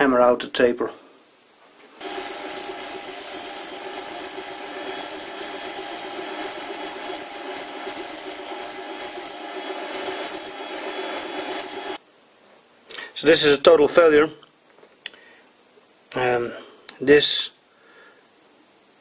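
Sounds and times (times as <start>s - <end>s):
rotary tool grinding metal: 2.0s - 12.0s.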